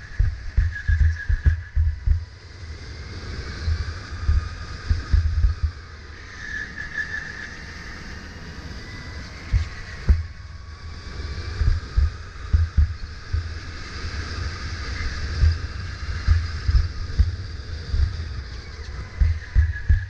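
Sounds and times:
low thumps: 0.0s - 2.3s, 3.7s - 5.8s, 9.5s - 10.4s, 11.6s - 13.6s, 15.4s - 18.2s, 19.1s - 20.0s
electric go-kart whine: 0.0s - 20.0s
tyre and road noise: 8.8s - 20.0s.

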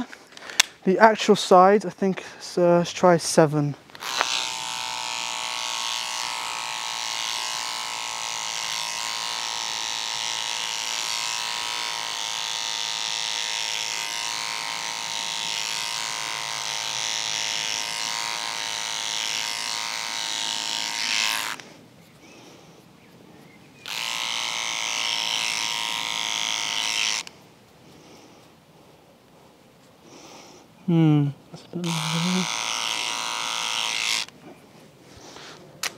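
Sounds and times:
beard trimmer buzzing: 3.9s - 21.8s, 23.8s - 27.4s, 31.8s - 34.4s.

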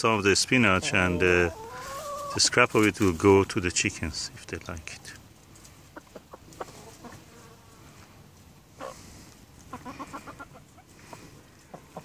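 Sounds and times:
hens pecking: 0.1s - 12.0s
hens clucking softly: 0.5s - 2.6s, 5.4s - 12.0s.

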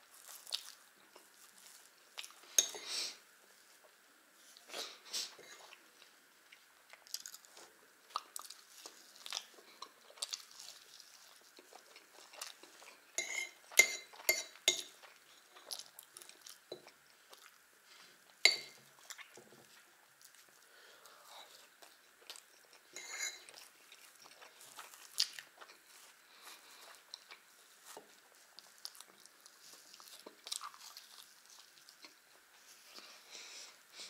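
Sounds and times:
person chewing food: 0.1s - 2.9s, 3.8s - 34.0s
metal spoon clinking on saucer: 13.2s - 14.9s, 18.5s - 18.8s.

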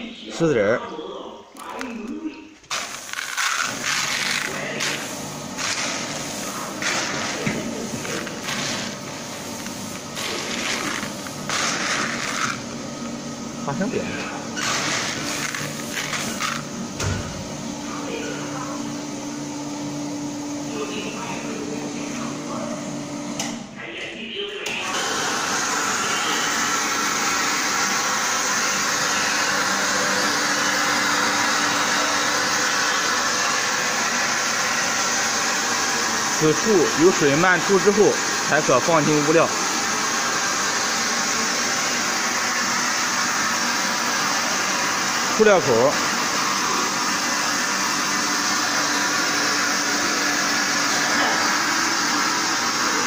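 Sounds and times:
machine motor hum: 1.6s - 23.7s.

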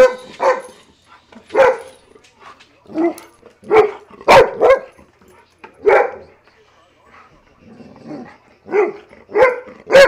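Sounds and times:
dog barking: 0.0s - 0.8s, 1.5s - 2.0s, 3.0s - 5.0s, 5.8s - 6.3s, 8.7s - 10.0s.

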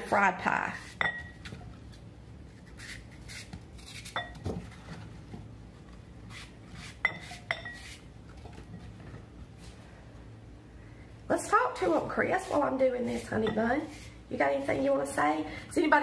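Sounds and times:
knife cutting apple: 0.0s - 4.9s, 6.2s - 8.4s, 11.8s - 15.1s.

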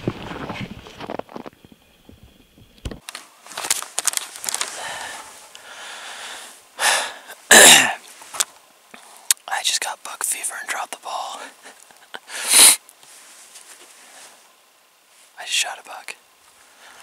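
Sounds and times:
man breathing heavily: 4.5s - 7.4s.

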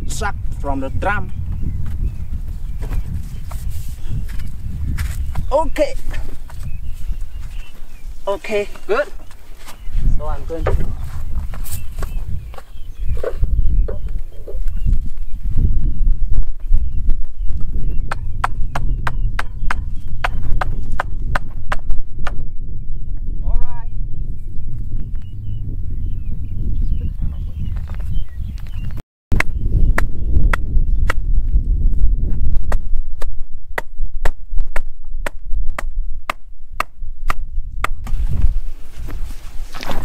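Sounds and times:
hammer striking wooden stake: 18.1s - 22.4s, 32.7s - 38.2s.

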